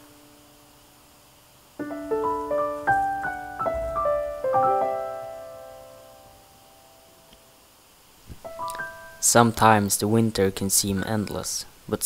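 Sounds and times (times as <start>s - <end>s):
soft piano music: 1.8s - 7.6s, 8.4s - 9.6s.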